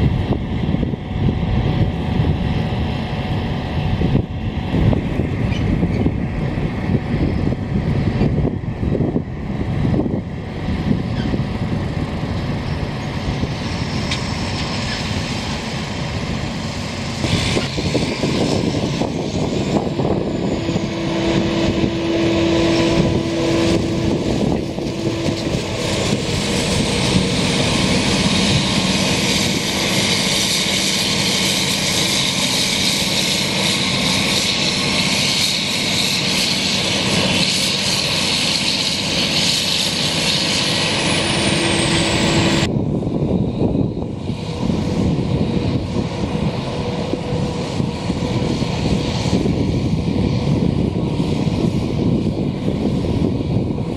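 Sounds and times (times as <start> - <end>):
high machine whine: 0.0 - 53.9
loud machine drone: 0.0 - 53.9.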